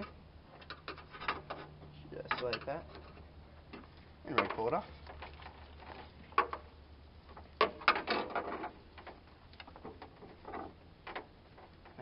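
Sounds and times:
rubber hose clicking and creaking: 0.0s - 6.7s.

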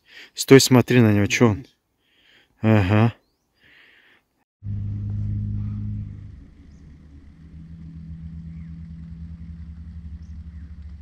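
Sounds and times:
low steady drone: 4.6s - 11.0s
sci-fi hum over deep rumble: 4.6s - 11.0s.

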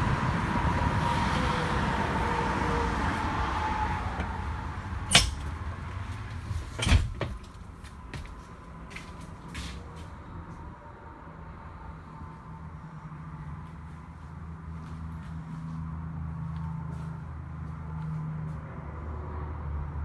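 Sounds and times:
outdoor background noise: 0.0s - 20.0s
sharp knocks: 5.1s - 5.5s.

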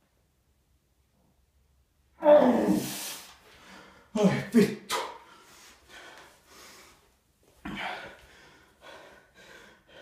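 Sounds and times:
man gasping for breath: 7.6s - 10.0s.

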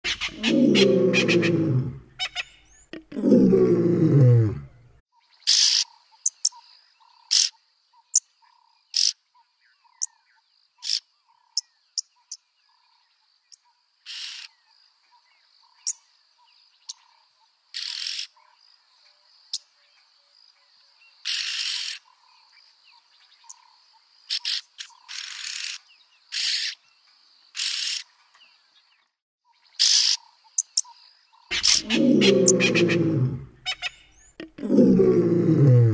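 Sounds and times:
birds calling with harsh rasps: 0.0s - 3.1s, 29.8s - 35.4s.

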